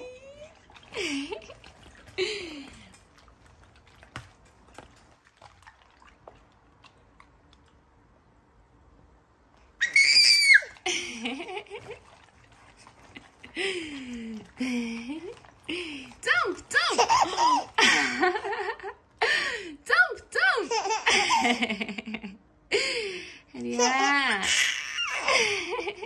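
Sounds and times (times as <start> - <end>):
baby squealing: 9.8 - 10.8, 23.8 - 25.3
baby laughing: 16.4 - 18.6, 20.5 - 21.9, 23.6 - 26.0.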